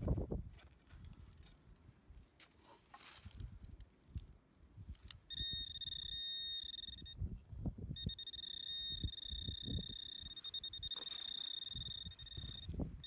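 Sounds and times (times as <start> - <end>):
high-pitched electronic tone: 5.3 - 7.2, 8.0 - 12.8.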